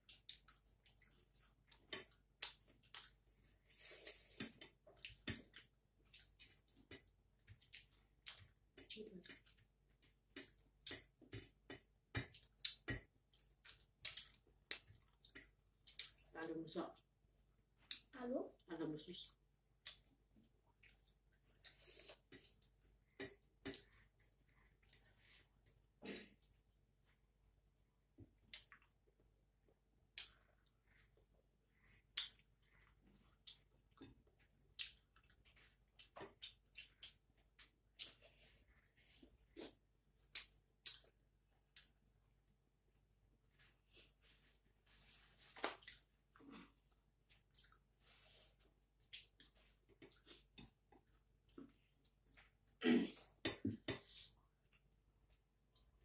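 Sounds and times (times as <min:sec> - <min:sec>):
mouth chewing food: 0:00.0 - 0:27.2, 0:28.3 - 0:44.5, 0:45.6 - 0:56.0
mouth chewing smacks: 0:45.6 - 0:48.0.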